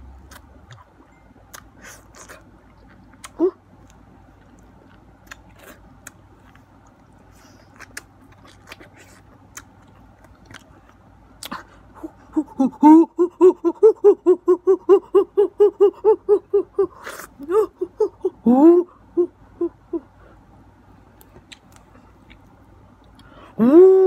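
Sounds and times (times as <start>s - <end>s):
mouth sounds eating fruit: 0.0s - 24.0s
person hooting: 12.0s - 20.1s, 23.6s - 24.0s.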